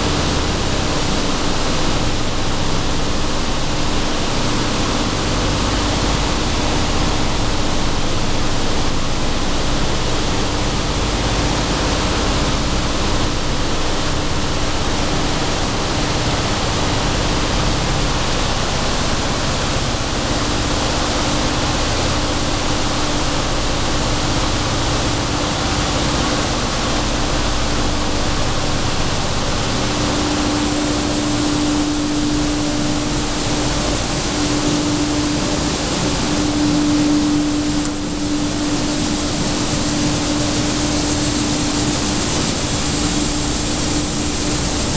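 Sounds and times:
constant machine hum: 0.0 - 44.9
machinery rushing noise: 26.5 - 44.9.

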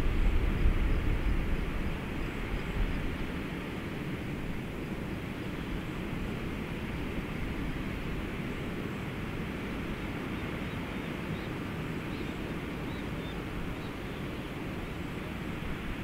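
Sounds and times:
low rumbling background noise: 0.0 - 16.0.

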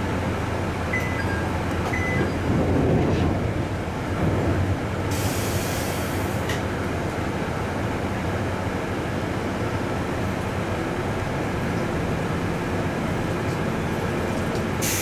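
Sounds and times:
diesel railcar engine hum: 0.0 - 15.0
compressed air hiss: 14.8 - 15.0.

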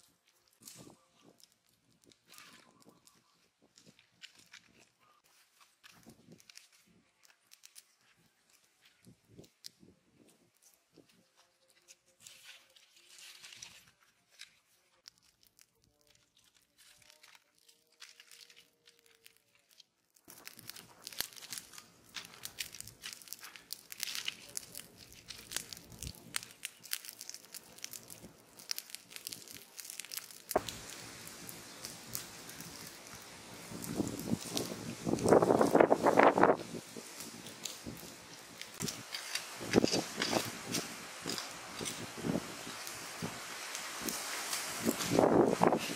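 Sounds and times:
campfire crackling: 0.0 - 45.9
sharp fire pop: 30.1 - 36.6.

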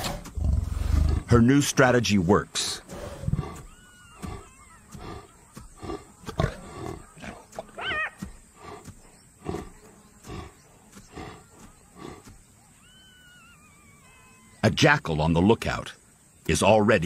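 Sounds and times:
lioness panting: 2.8 - 12.5.

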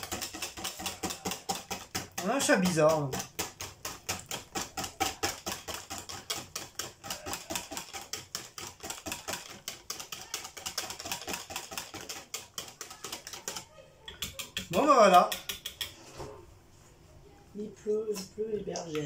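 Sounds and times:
wire whisk beating batter: 0.0 - 16.1.

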